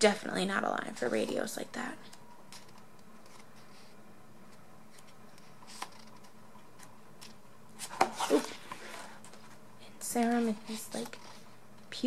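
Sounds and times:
faint room hum: 0.0s - 12.0s
page turning: 2.5s - 3.9s, 4.5s - 9.6s.

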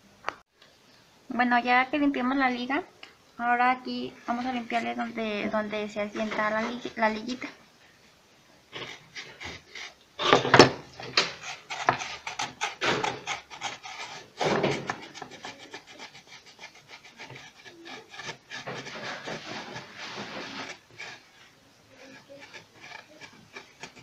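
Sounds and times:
scraping against pump housing: 4.3s - 7.4s, 8.8s - 24.0s.

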